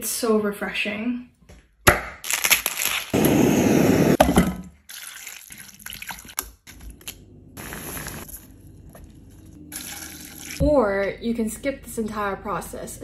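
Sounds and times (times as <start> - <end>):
blowtorch flame hissing: 3.2 - 4.2.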